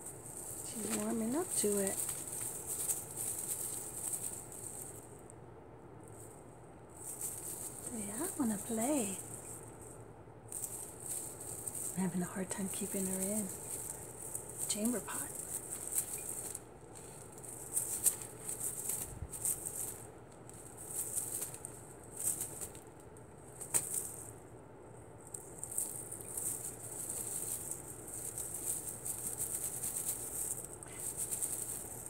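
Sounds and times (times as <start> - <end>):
crinkly tinsel rustling: 0.0 - 5.3, 6.0 - 32.0.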